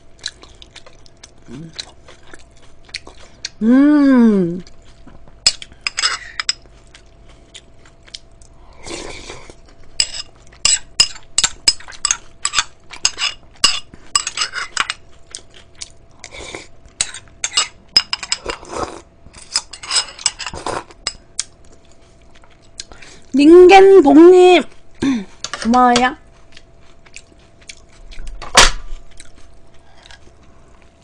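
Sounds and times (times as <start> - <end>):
slurping and chewing noodles: 0.2 - 3.6, 6.6 - 10.6, 14.5 - 17.3, 18.3 - 19.6, 20.4 - 23.3, 26.3 - 28.4, 29.1 - 31.0.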